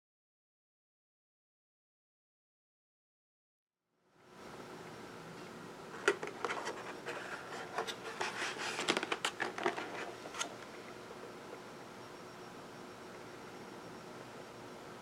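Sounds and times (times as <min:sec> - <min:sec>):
plastic container crackling: 0:06.0 - 0:10.6.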